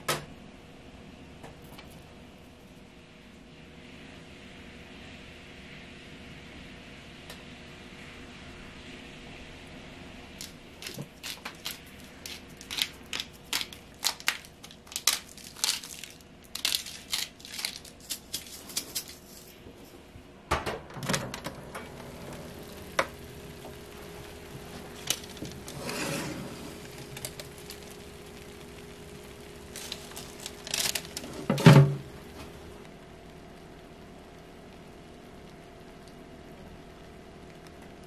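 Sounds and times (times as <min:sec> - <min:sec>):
steady low hum: 0:00.0 - 0:38.0
salt grinder crunching: 0:10.4 - 0:19.5, 0:22.5 - 0:31.6
metal tray scraping into oven: 0:24.7 - 0:27.7, 0:30.8 - 0:32.1
clunk: 0:31.3 - 0:32.1.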